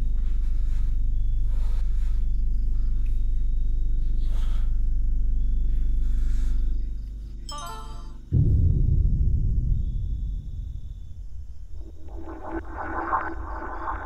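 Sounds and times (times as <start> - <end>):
low suspense score drone: 8.1 - 14.0.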